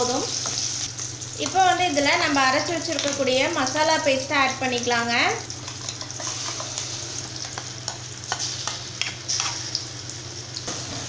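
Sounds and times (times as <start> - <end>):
onions sizzling in hot oil: 0.0 - 11.0.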